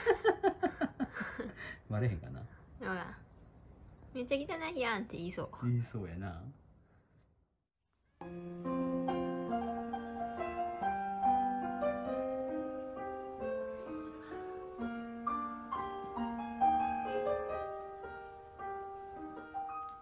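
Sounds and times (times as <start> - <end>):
slow solo piano music: 8.2 - 20.0.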